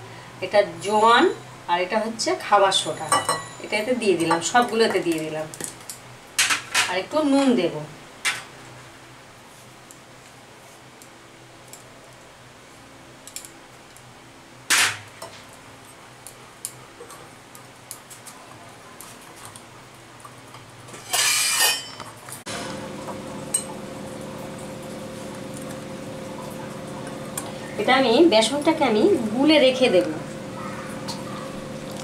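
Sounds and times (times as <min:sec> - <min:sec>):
steady hum: 0:22.5 - 0:32.0.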